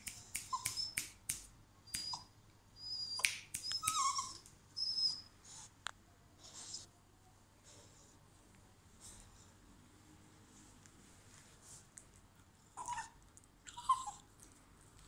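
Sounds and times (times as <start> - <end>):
puppy squeaking: 0.4 - 1.1, 1.9 - 5.3, 12.8 - 14.2
puppy whining: 0.5 - 1.0, 1.9 - 5.7, 12.7 - 14.4.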